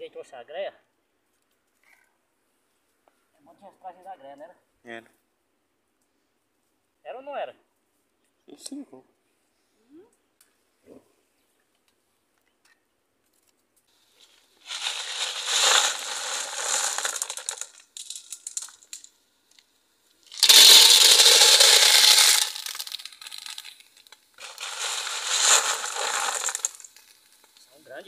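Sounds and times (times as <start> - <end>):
clam shells clattering into metal pot: 14.7 - 19.1, 20.3 - 27.6.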